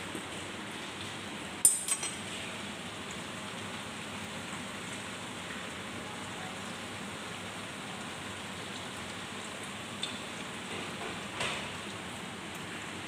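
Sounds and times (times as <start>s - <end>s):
oil frying sizzle: 0.0s - 13.0s.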